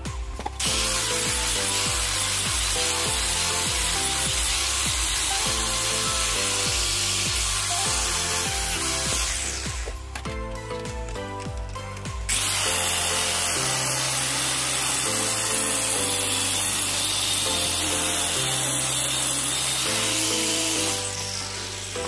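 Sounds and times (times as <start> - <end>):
angle grinder grinding metal: 0.0 - 22.0
background music: 0.0 - 22.0.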